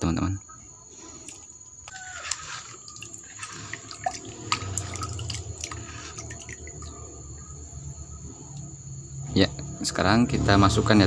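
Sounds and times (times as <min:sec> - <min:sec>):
wet squelching: 0:01.0 - 0:07.6
small clicks and splashes: 0:01.2 - 0:07.2.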